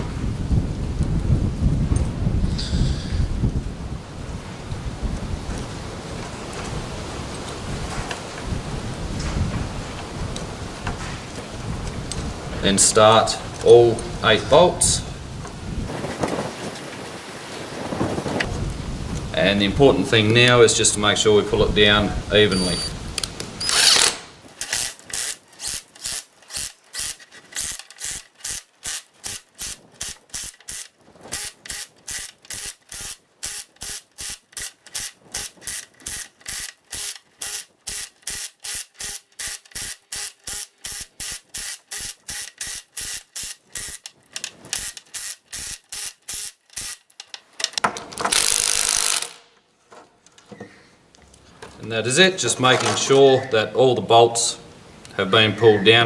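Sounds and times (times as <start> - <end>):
impact driver hammering: 48.2 - 49.4.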